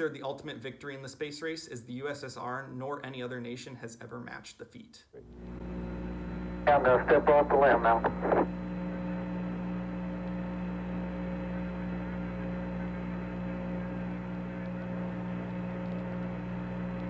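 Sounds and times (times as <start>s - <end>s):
low electrical hum with hiss: 0.0s - 17.0s.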